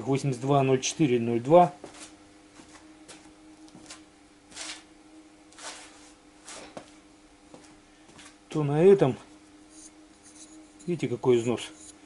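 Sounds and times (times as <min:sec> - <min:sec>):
steady low hum: 0:00.0 - 0:12.0
faint footsteps: 0:01.8 - 0:04.8, 0:05.5 - 0:08.4.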